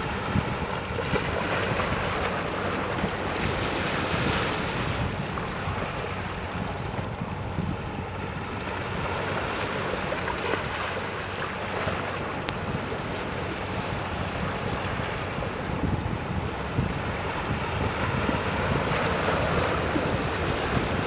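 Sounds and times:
low hum of ship engines: 0.0 - 21.0
wind on microphone: 0.0 - 21.0.

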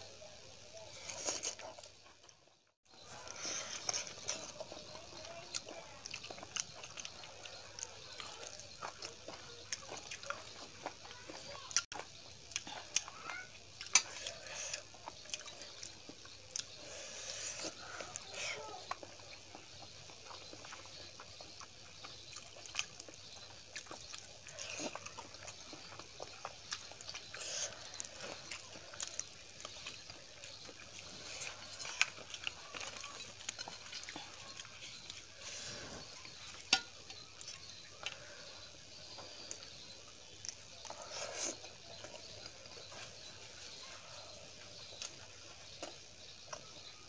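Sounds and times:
wet chewing and lip smacking: 4.3 - 16.8, 17.8 - 35.2.

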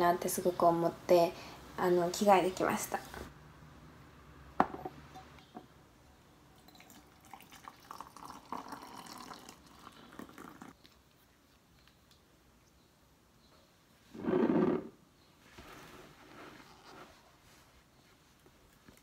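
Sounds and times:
glass mug clinking on table: 4.6 - 5.7
water pouring into glass mug: 6.6 - 10.7.

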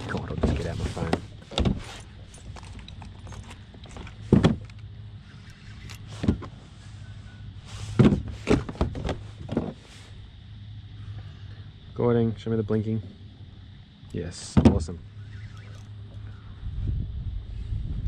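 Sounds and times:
knocks and clatters in kayak: 0.0 - 4.9, 8.0 - 9.8, 14.5 - 14.9
low steady hum: 0.0 - 18.0.

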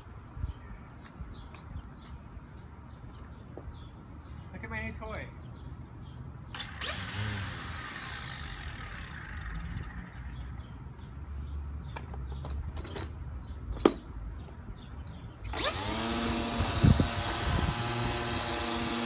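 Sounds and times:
trimmer motor whine: 6.6 - 10.4, 15.5 - 19.0.

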